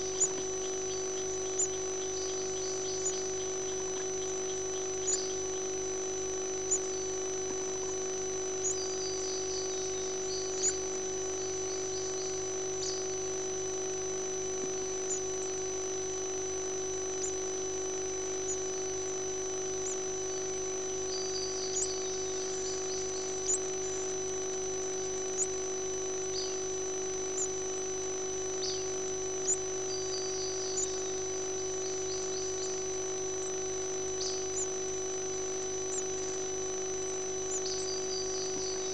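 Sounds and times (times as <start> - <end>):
nestlings begging peeps: 0.0 - 5.8, 6.6 - 7.2, 8.5 - 13.1, 21.0 - 24.1, 27.4 - 27.6, 28.6 - 34.8, 35.9 - 36.3, 37.5 - 38.9
electrical hum with high whine: 0.0 - 38.9.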